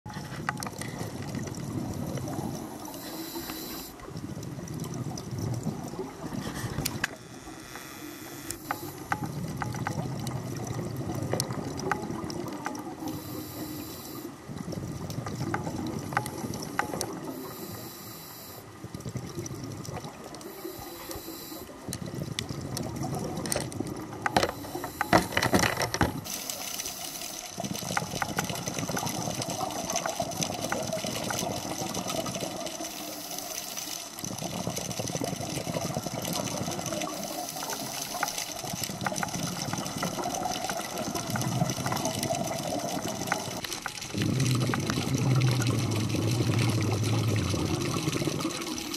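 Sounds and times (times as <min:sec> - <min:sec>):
exhaled bubbles rushing: 0:00.1 - 0:03.4, 0:04.0 - 0:07.1, 0:08.8 - 0:13.7, 0:14.4 - 0:17.8, 0:18.7 - 0:25.2, 0:26.2 - 0:48.9
hissing regulator inhale: 0:02.3 - 0:04.1, 0:13.0 - 0:14.4, 0:16.5 - 0:18.7, 0:20.4 - 0:21.8, 0:24.4 - 0:25.4, 0:26.2 - 0:28.1, 0:32.8 - 0:34.5, 0:37.0 - 0:39.6.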